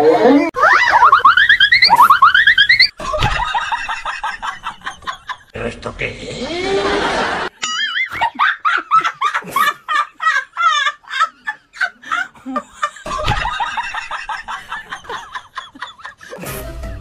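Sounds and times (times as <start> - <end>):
person laughing hard: 8.1 - 17.0.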